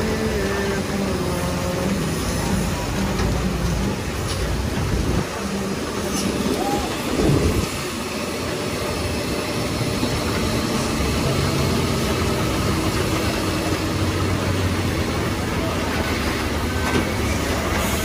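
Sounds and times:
truck diesel engine running: 0.0 - 18.0.

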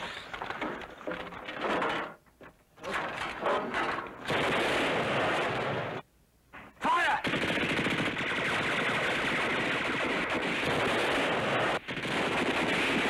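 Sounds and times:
rapid automatic gunfire: 4.2 - 6.0, 7.2 - 13.0.

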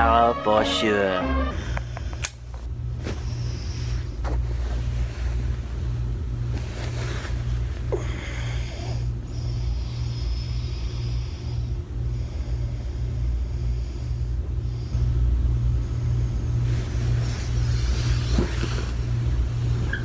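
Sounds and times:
faint high whine: 0.0 - 4.2
vehicle rumbling in motion: 0.0 - 20.0.

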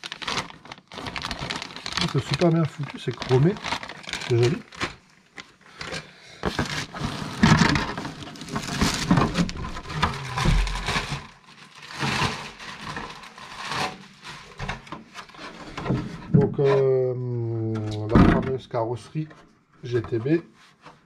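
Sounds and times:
plastic wrap crinkling: 0.0 - 15.5.

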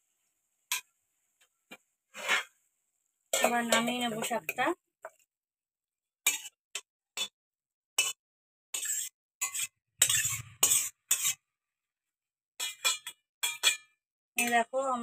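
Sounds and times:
metal spatula scraping a wok: 0.7 - 0.9, 2.1 - 2.6, 3.3 - 5.2, 6.2 - 7.4, 8.0 - 11.5, 12.6 - 14.6.

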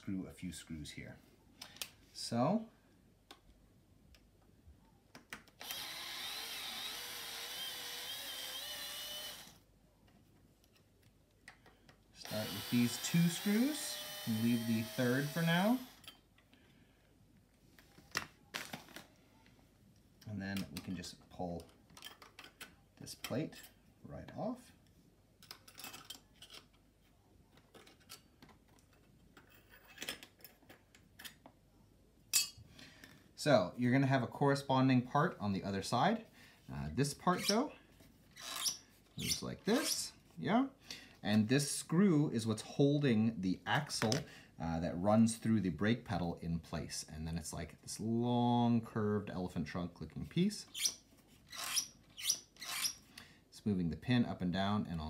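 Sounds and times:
electric screwdriver whining: 5.6 - 9.6, 12.2 - 16.0
faint clicks and scrapes: 24.8 - 31.6.

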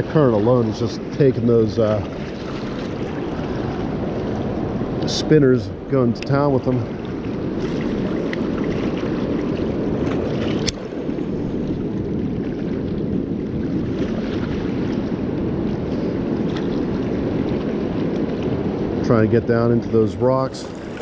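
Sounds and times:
fast-flowing river rushing: 0.0 - 11.9, 14.1 - 21.0
wind on microphone: 0.0 - 21.0.

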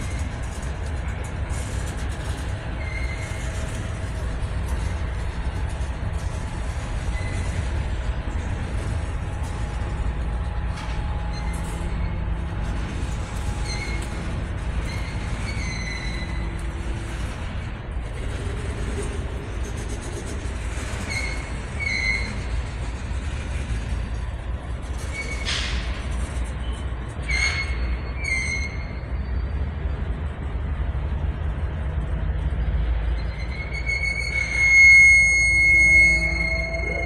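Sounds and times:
freight train wheels rumbling: 0.0 - 37.0
train wheel squeals: 0.0 - 37.0.

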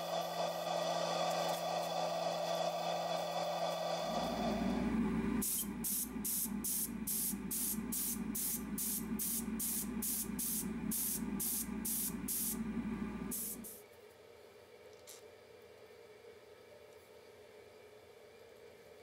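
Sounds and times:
steady low hum: 0.0 - 13.8
spray paint hissing bursts: 5.4 - 12.6, 13.3 - 13.8.

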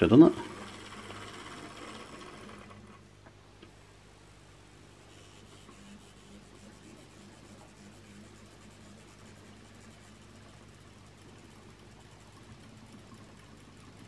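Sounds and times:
model train motor humming: 0.0 - 3.0.

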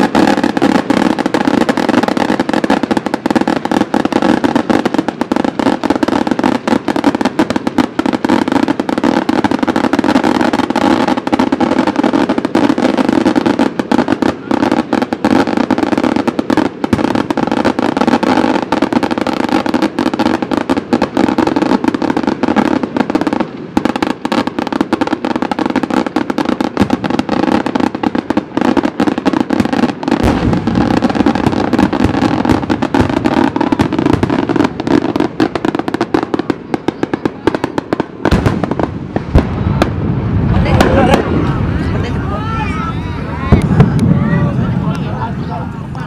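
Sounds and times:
deep firework booms: 0.0 - 46.0
fireworks crackling pops: 0.0 - 46.0.

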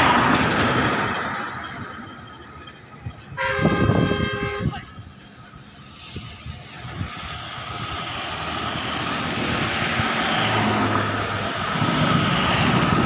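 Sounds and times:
vehicle passing by: 5.8 - 13.0.

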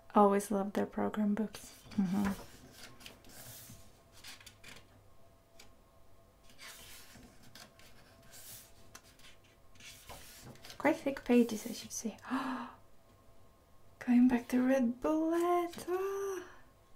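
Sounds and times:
paper rustling: 1.5 - 4.9, 6.4 - 11.9
pages turning: 1.6 - 4.9, 6.4 - 11.8.

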